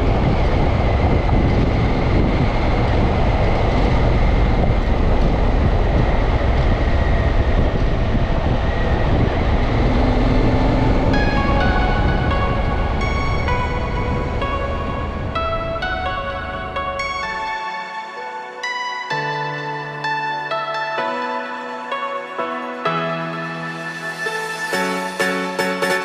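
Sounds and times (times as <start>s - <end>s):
wind buffeting: 0.0s - 21.3s
music: 9.6s - 26.0s.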